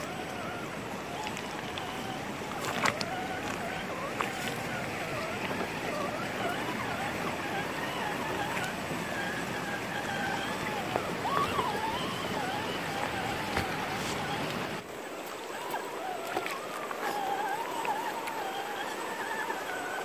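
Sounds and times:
flowing river water: 0.0s - 20.0s
rc car motor whine: 0.0s - 20.0s.

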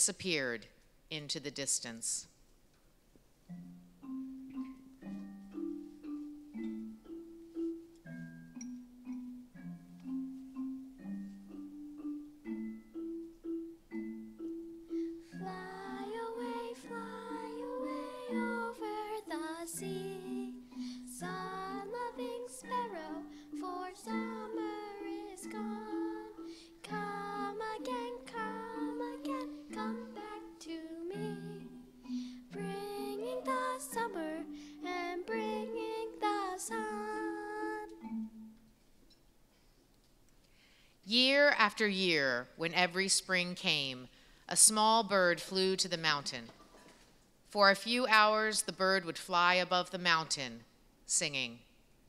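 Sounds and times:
xylophones playing low notes: 3.4s - 38.8s
children singing: 15.4s - 20.6s, 21.2s - 31.8s, 32.6s - 37.9s.

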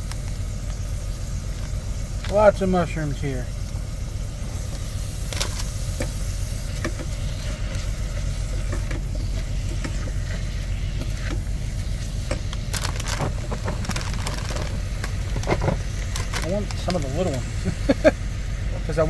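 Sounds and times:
onions and mushrooms sizzling: 0.0s - 19.0s
steady low hum: 0.0s - 19.0s.

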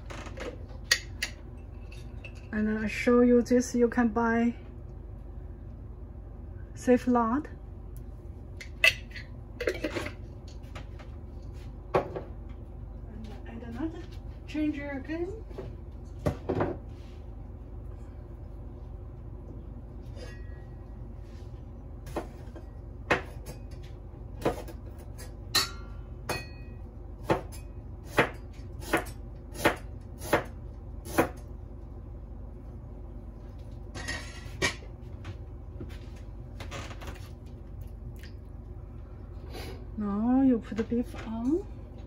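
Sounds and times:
steady low hum: 0.0s - 42.0s
knife chopping on cutting board: 27.2s - 30.5s.

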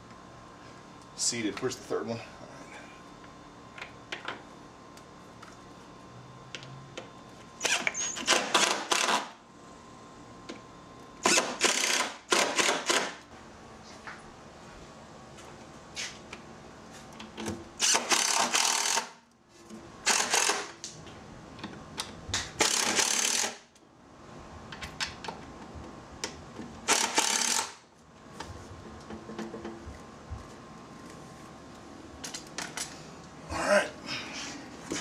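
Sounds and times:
cordless drill driving screws: 11.2s - 13.1s, 17.8s - 19.1s, 20.1s - 20.7s, 22.6s - 23.6s, 26.9s - 27.8s.

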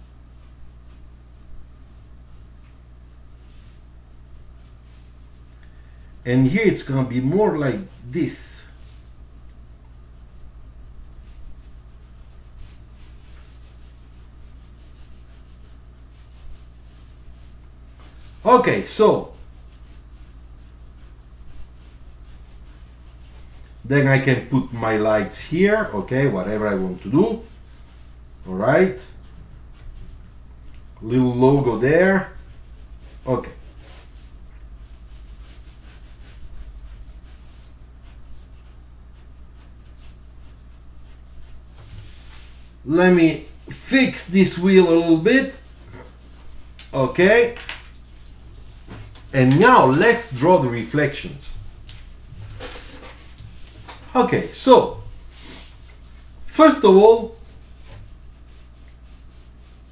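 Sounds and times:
faint low hum: 0.0s - 59.9s
pencil scratching on paper: 0.3s - 2.5s, 3.1s - 9.1s, 11.1s - 18.2s, 18.8s - 28.2s, 31.6s - 53.8s, 54.9s - 59.9s
pen scratching on paper: 32.4s - 42.1s, 43.6s - 48.4s.

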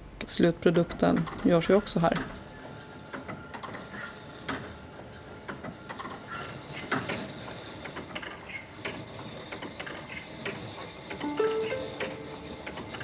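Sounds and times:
mill machinery clicking and knocking: 1.0s - 2.4s, 3.1s - 11.2s.

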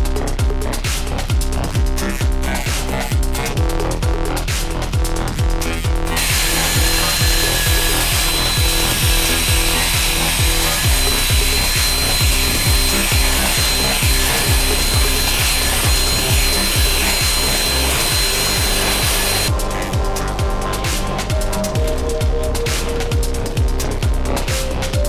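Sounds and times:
electronic music with thumping beat: 0.0s - 25.0s
electric drill mixing plaster: 5.6s - 19.8s.

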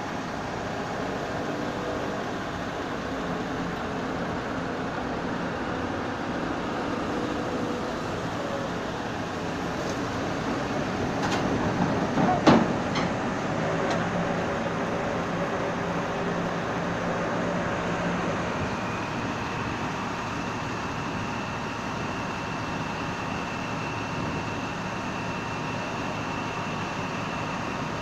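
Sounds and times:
drone of trucks and machinery: 0.0s - 28.0s.

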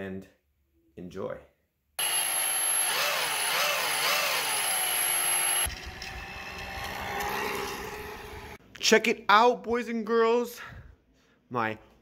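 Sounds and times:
electric motor whine: 2.0s - 8.6s
high-pitched electronic whine: 4.6s - 8.6s
scooter riding rumble: 5.6s - 8.6s.

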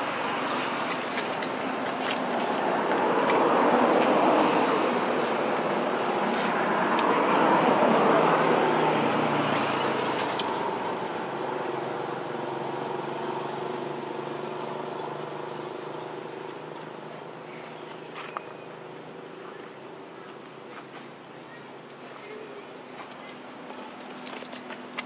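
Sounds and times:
vehicle passing: 0.0s - 18.3s.

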